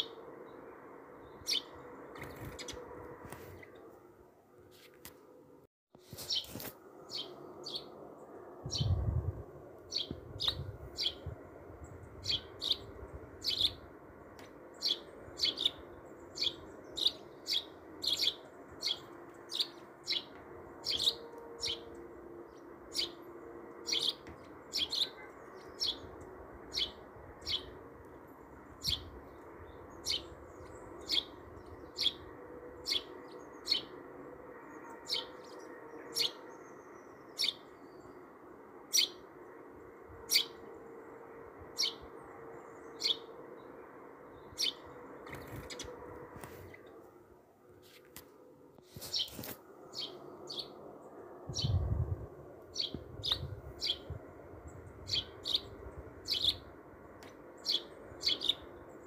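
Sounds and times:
bird chirping: 0.0 - 2.9, 6.2 - 8.0, 9.9 - 13.9, 14.7 - 23.2, 23.8 - 27.8, 28.8 - 34.0, 34.6 - 38.3, 38.9 - 39.2, 41.8 - 46.0, 49.0 - 50.8, 52.7 - 56.7, 57.6 - 59.0.

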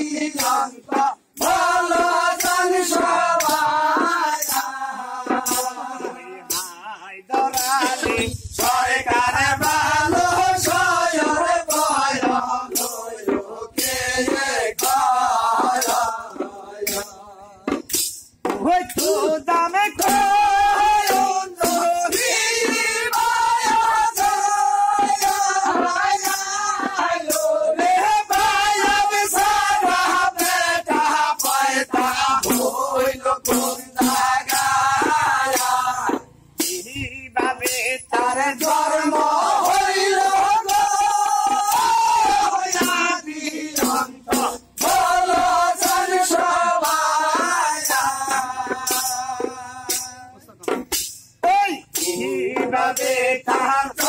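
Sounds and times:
men singing folk song: 0.0 - 50.4, 51.4 - 54.0
hand-clapping: 3.4 - 4.8.

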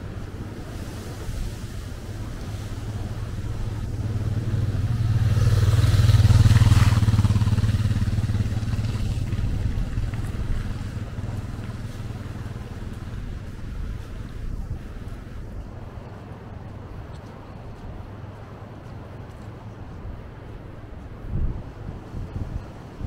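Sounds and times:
engine passing by: 0.0 - 17.0.

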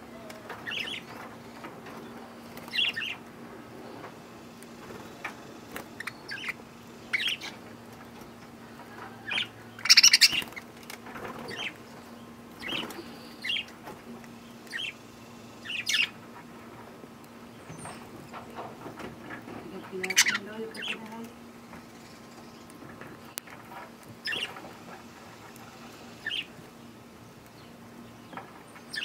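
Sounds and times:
faint steady hum: 0.0 - 29.0
budgerigars chirping: 0.7 - 1.0, 6.0 - 7.6, 9.3 - 10.6, 15.6 - 16.2, 20.0 - 21.0, 24.2 - 24.5, 26.2 - 26.5
wings flapping: 8.8 - 13.1.

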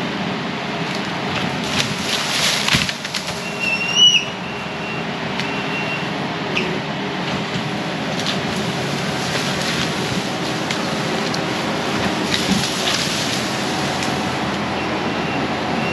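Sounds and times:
diesel engine running: 0.0 - 15.9
wood cracking and snapping: 0.9 - 3.8, 7.5 - 14.2
high squeal: 3.4 - 6.7.

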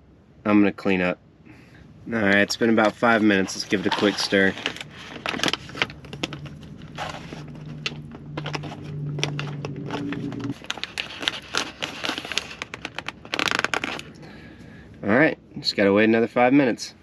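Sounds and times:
low steady hum: 0.0 - 17.0
food pouch crinkling: 2.2 - 14.2.

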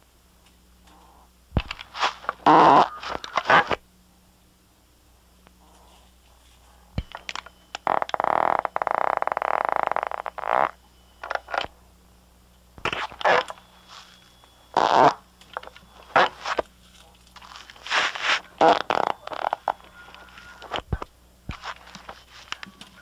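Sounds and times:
steady low hum: 0.0 - 23.0
fart sounds: 1.6 - 3.8, 7.8 - 11.7, 12.8 - 13.5, 14.8 - 15.2, 16.1 - 16.6, 17.8 - 22.2.

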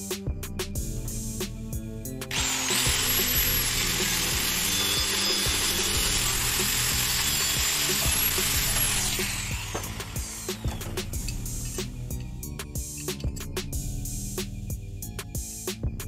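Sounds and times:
angle grinder cutting steel: 2.3 - 12.2.

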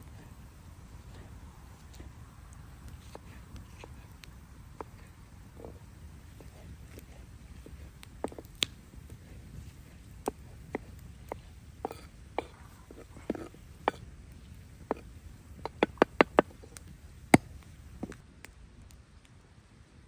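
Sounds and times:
knife chopping on wooden board: 10.2 - 14.0.

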